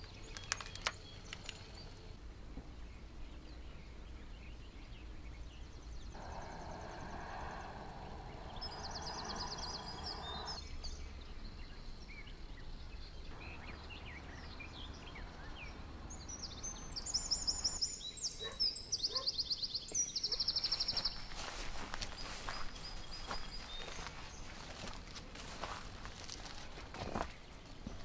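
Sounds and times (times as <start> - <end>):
small birds singing: 0.0 - 28.0
low steady rumble: 2.0 - 17.8.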